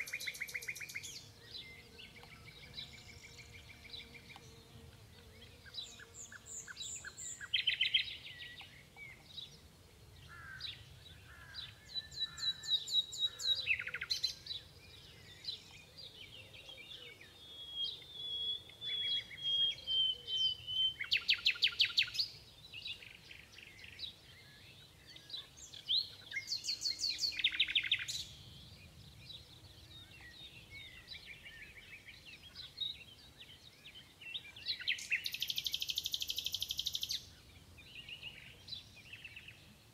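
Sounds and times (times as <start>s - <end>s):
nightingale singing: 0.0s - 4.6s, 5.4s - 39.7s.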